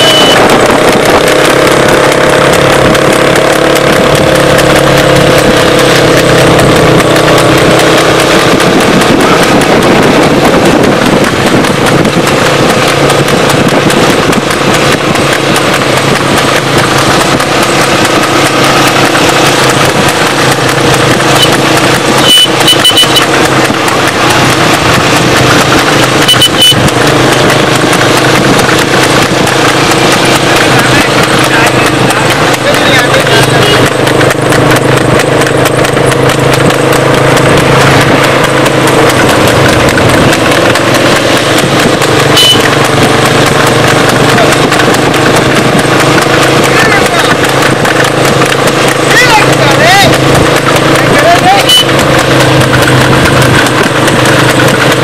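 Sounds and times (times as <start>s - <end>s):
short high beeps: 0.0s - 0.4s, 22.2s - 23.3s, 26.2s - 26.9s, 42.3s - 42.8s
horse hooves clip-clopping: 0.0s - 55.0s
motor vehicle humming: 0.0s - 55.0s.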